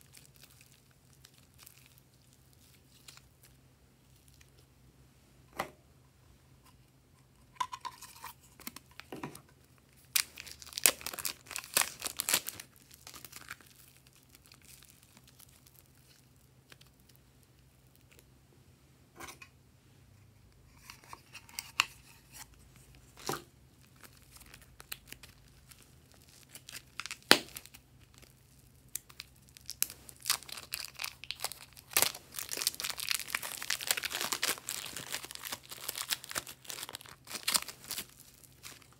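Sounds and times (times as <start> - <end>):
plastic bag crinkling: 10.0 - 17.2, 23.8 - 38.9.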